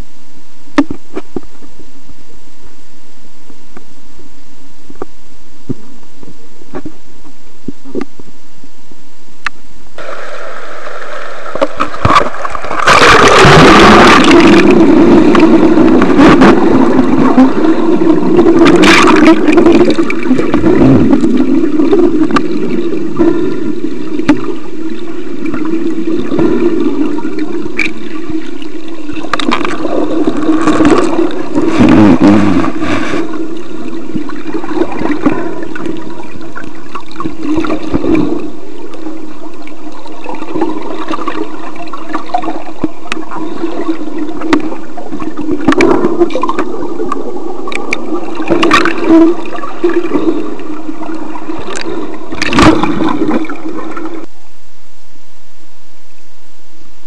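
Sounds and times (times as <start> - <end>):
low drone of water: 0.0 - 57.0
loud splash: 10.0 - 17.4
muffled water sloshing: 10.0 - 54.3.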